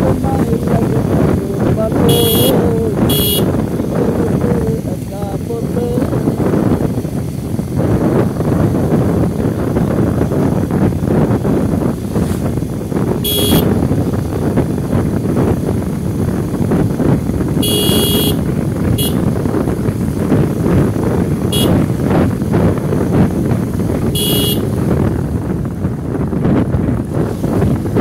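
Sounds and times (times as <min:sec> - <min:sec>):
steady rumble: 0:00.0 - 0:28.0
wind buffeting microphone: 0:00.0 - 0:28.0
horn tooting high-pitched beeps: 0:01.9 - 0:03.6, 0:13.2 - 0:13.8, 0:17.6 - 0:18.4, 0:19.0 - 0:19.3, 0:21.5 - 0:21.9, 0:24.1 - 0:24.8.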